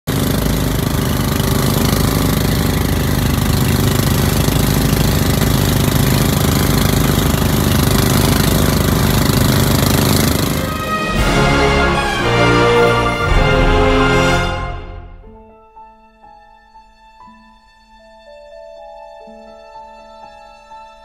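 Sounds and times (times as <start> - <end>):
rushing wake wash: 0.1 - 14.7
boat engine running: 0.1 - 15.0.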